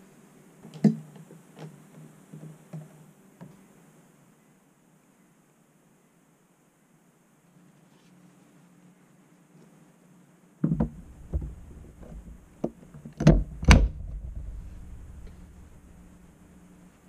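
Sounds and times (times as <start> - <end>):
plastic knocks and clicks: 10.6 - 14.4.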